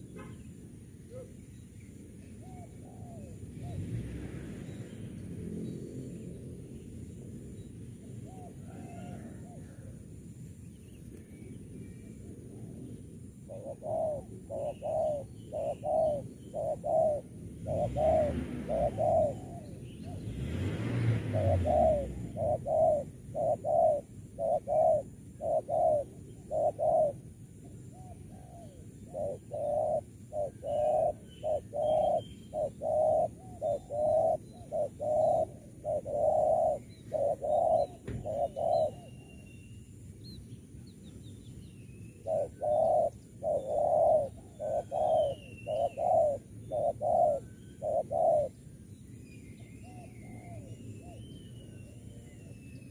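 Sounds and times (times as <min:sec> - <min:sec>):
small birds chirping: 0:00.0 - 0:09.9, 0:10.6 - 0:52.9
doves cooing: 0:01.0 - 0:01.4, 0:02.4 - 0:04.4, 0:08.1 - 0:10.3, 0:12.2 - 0:39.4, 0:42.1 - 0:48.7, 0:49.8 - 0:52.9.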